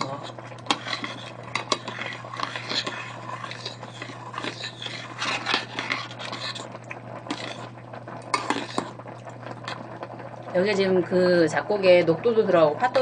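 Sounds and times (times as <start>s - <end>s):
spoon scraping metal pot: 0.0s - 9.0s.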